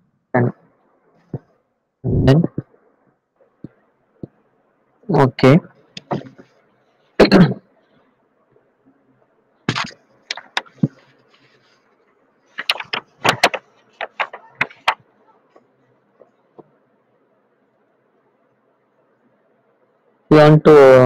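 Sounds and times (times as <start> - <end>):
mouse and keyboard clicks: 9.7 - 11.0, 12.6 - 15.0.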